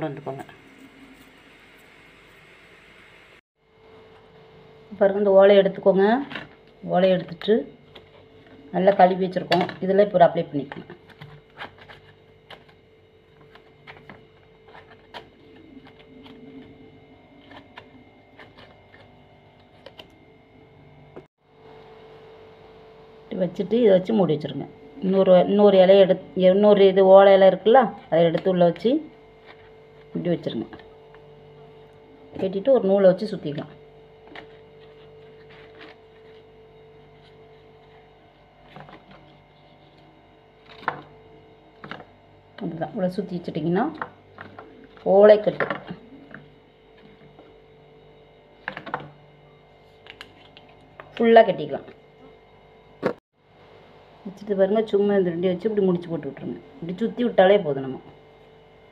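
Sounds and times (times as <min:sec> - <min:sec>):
steady low hum: 0:00.0 - 0:58.9
handling leaf strip and dough: 0:28.0 - 0:47.8.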